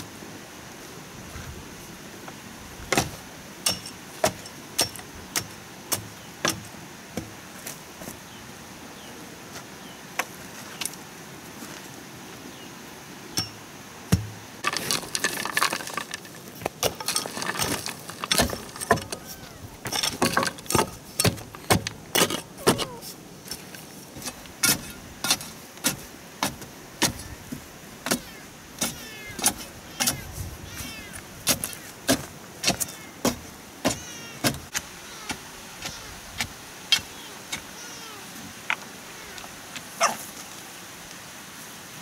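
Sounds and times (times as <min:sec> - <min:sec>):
tamping pole knocking on soil: 0:02.9 - 0:07.4, 0:13.4 - 0:30.8, 0:31.4 - 0:37.7
earth and stones scraping: 0:13.3 - 0:37.8.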